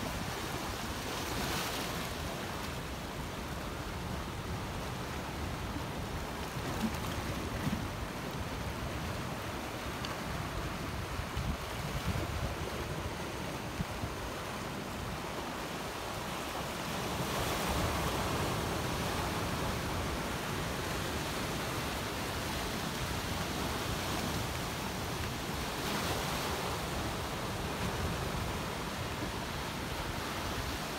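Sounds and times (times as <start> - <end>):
waves breaking over rocks: 0.0 - 30.9
wind on microphone: 10.4 - 14.3.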